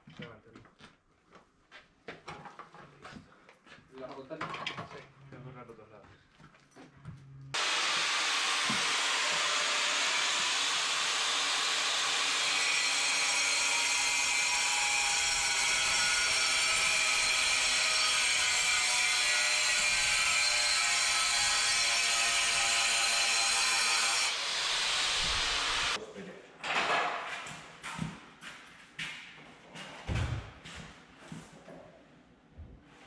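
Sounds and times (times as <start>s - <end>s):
power tool whirring: 7.6s - 26.0s.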